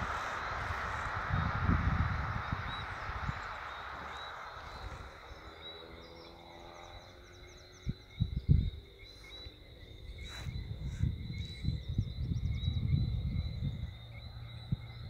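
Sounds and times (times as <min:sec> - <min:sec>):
wind thumps on microphone: 0:00.0 - 0:06.2, 0:10.2 - 0:15.0
rushing noise: 0:00.0 - 0:07.4
frogs chirping: 0:00.0 - 0:15.0.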